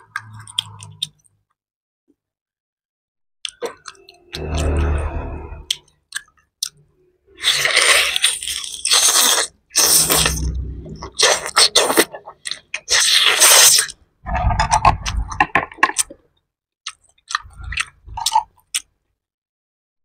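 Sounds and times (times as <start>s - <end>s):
person chewing chicken on the bone: 5.7s - 16.2s, 16.8s - 19.0s.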